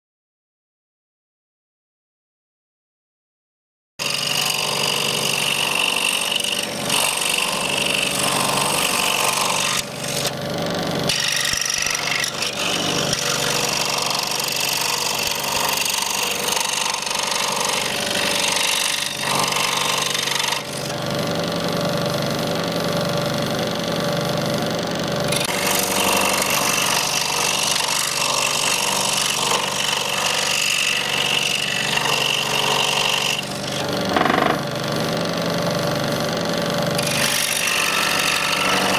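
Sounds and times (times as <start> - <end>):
scroll saw cutting nut shell: 4.0 - 23.2, 25.2 - 38.9.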